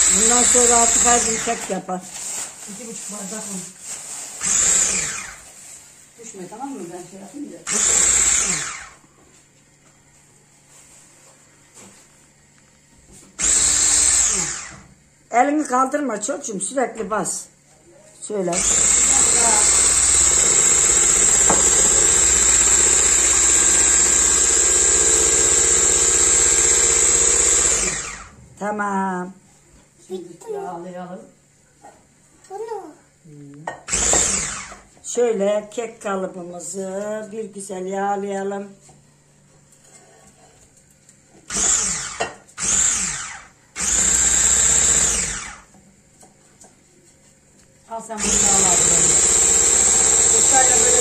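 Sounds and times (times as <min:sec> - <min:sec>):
electric hand mixer whisking batter: 0:00.0 - 0:01.8, 0:04.3 - 0:05.6, 0:07.6 - 0:09.1, 0:13.4 - 0:14.9, 0:18.5 - 0:28.4, 0:33.9 - 0:34.9, 0:41.5 - 0:45.8, 0:48.1 - 0:51.0.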